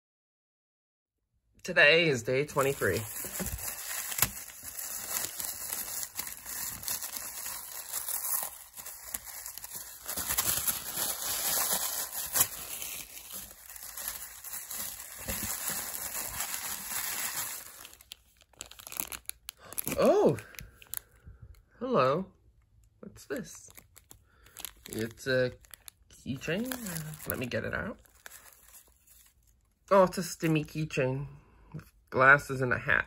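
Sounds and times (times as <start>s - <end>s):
tin foil crinkling and tearing: 2.5s - 21.2s, 23.6s - 29.8s.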